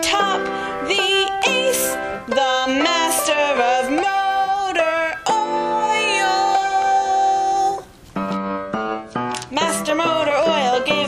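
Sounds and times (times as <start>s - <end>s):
person singing: 0.0s - 7.9s, 9.5s - 11.0s.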